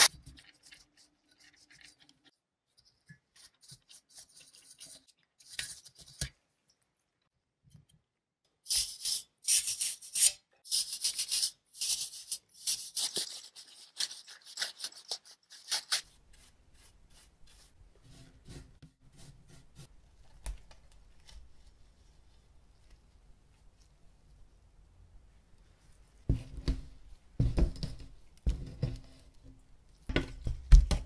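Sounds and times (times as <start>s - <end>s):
brush strokes on computer parts: 0.0s - 6.0s, 15.9s - 19.9s.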